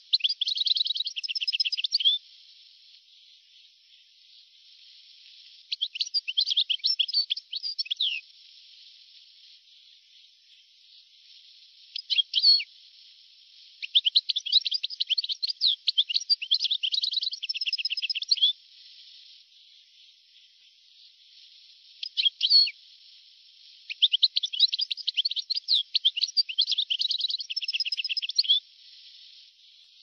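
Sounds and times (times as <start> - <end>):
bird twittering: 0.0 - 2.2, 5.7 - 8.2, 11.9 - 12.6, 13.8 - 18.5, 22.0 - 22.7, 23.9 - 28.6
steady hiss: 0.0 - 30.0.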